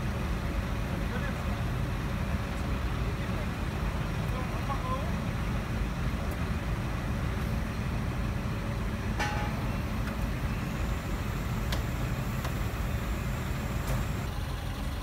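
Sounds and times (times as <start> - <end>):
engine rumbling: 0.0 - 15.0
short metallic clink: 9.2 - 9.9.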